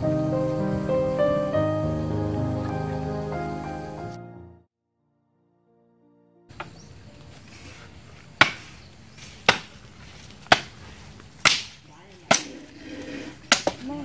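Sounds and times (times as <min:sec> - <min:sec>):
axe chopping wood: 0:08.4 - 0:08.7, 0:09.4 - 0:09.8, 0:10.4 - 0:10.8, 0:11.4 - 0:12.5, 0:13.4 - 0:13.9.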